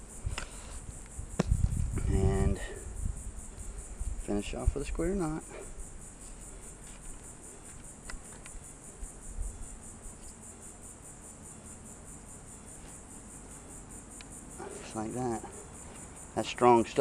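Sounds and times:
insect chorus buzzing: 0.0s - 17.0s.

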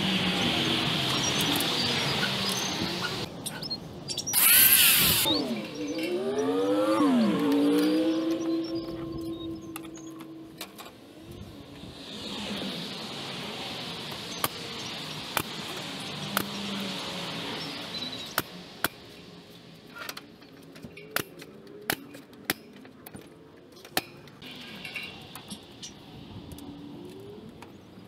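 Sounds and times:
pneumatic nail gun firing: 4.3s - 6.2s
steady hiss: 11.2s - 20.4s.

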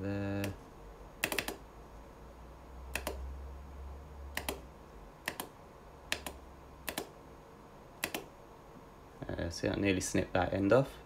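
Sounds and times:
computer mouse clicking: 1.2s - 1.6s, 2.9s - 3.3s, 4.3s - 7.2s, 8.0s - 8.3s.

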